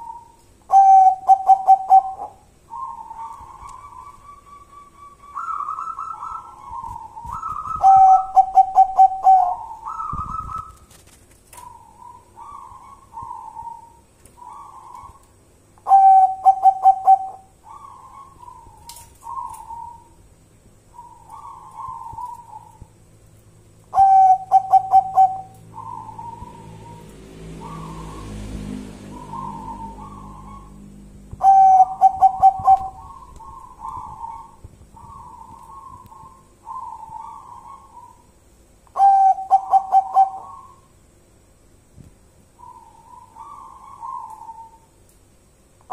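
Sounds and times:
stuttering bird song: 0.0 - 10.9, 11.5 - 23.0, 23.9 - 38.4, 39.0 - 41.0, 42.5 - 45.0
dove cooing: 0.0 - 20.2, 20.9 - 22.9, 23.9 - 38.3, 39.0 - 40.9, 42.6 - 44.9.

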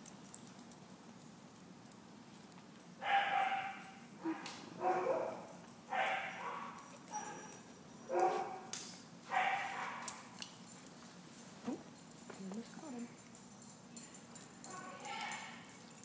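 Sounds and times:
dog yipping barks: 3.0 - 7.5, 8.1 - 8.7, 9.3 - 10.2.

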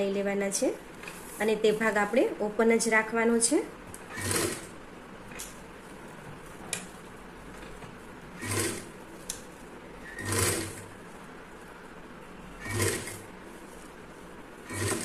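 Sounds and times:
sewing machine stitching: 4.0 - 4.8, 8.4 - 9.0, 10.0 - 10.9, 12.6 - 13.4, 14.6 - 15.0.

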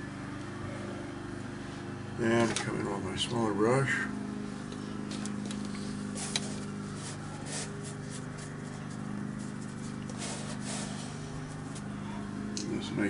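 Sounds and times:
steady low hum: 0.0 - 13.0
brush scratching on paper: 5.8 - 11.9.

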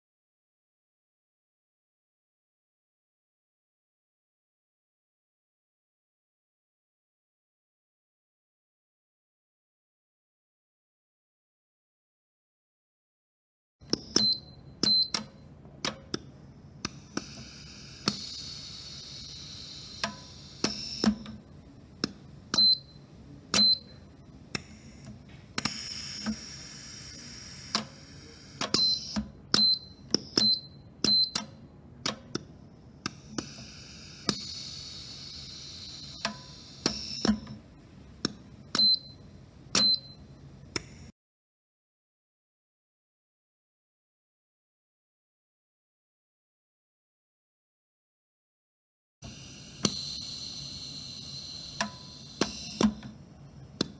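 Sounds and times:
air hiss: 17.0 - 21.1, 24.6 - 28.8, 33.2 - 37.2, 49.2 - 53.0.

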